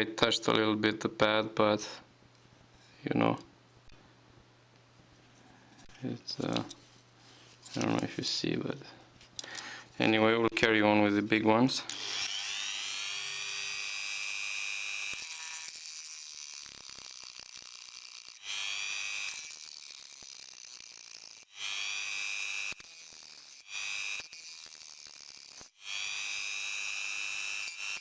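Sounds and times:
rotary tool whine: 0:11.9 - 0:28.0.

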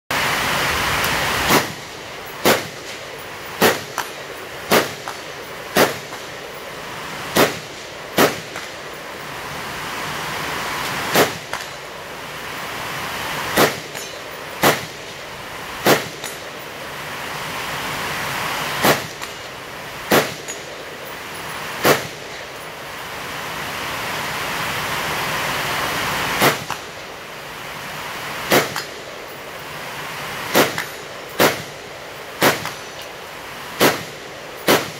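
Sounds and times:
steady hiss: 0:00.1 - 0:34.9
rifle shots: 0:01.4 - 0:06.6, 0:07.2 - 0:09.0, 0:10.9 - 0:11.8, 0:13.5 - 0:16.5, 0:18.7 - 0:20.8, 0:21.8 - 0:22.4, 0:26.3 - 0:26.9, 0:28.5 - 0:29.0, 0:30.5 - 0:33.1, 0:33.7 - 0:34.9.

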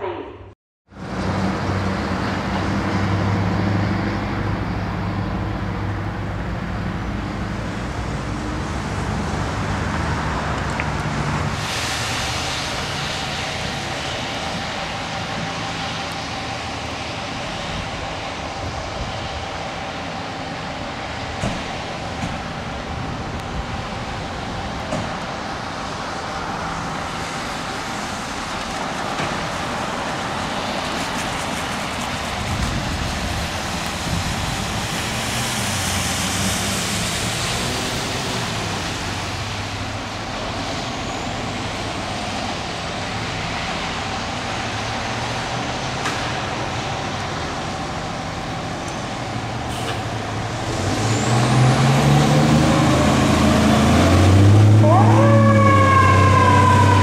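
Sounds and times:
siren rising: 0:51.8 - 0:57.0.

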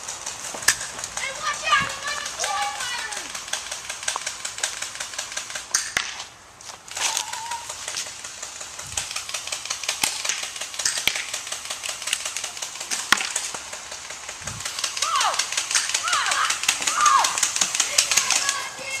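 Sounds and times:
sharp clicks: 0:00.0 - 0:19.0.

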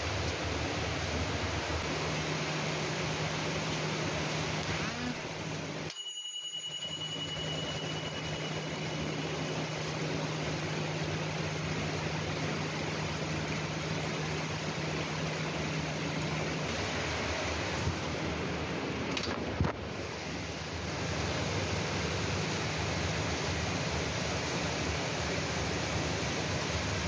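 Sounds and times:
heavy rain hissing: 0:00.0 - 0:05.8, 0:08.0 - 0:19.1, 0:19.8 - 0:27.0.

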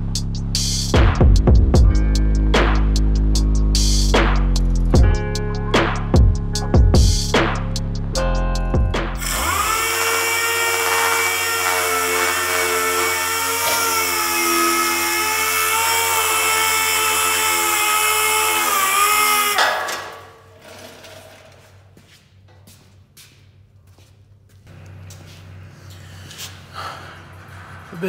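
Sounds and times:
air sander whining: 0:09.2 - 0:21.8, 0:24.7 - 0:28.0.

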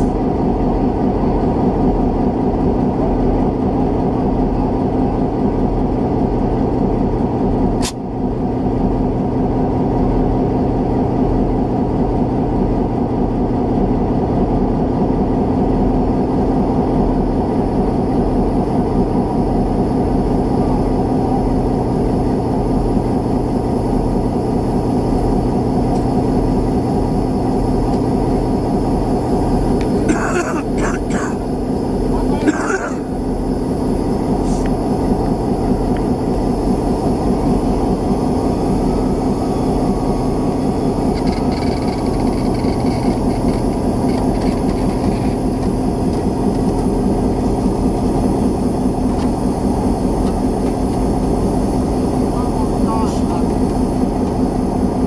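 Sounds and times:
diesel locomotive idling: 0:00.0 - 0:55.0
sharp click: 0:07.8 - 0:08.0.

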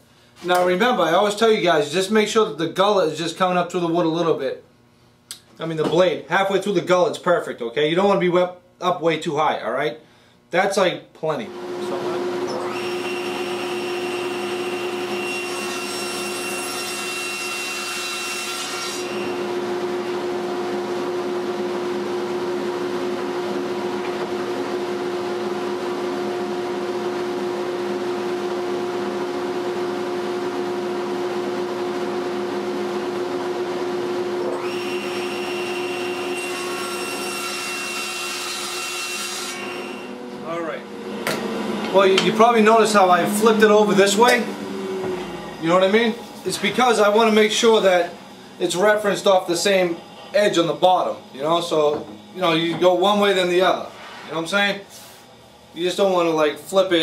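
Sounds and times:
table saw ripping wood: 0:12.6 - 0:19.5, 0:34.5 - 0:40.1.

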